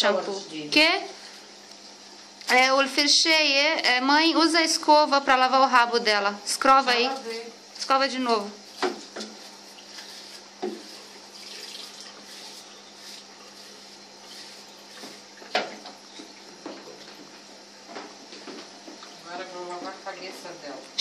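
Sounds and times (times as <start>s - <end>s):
tap water running into tub: 8.3s - 20.0s.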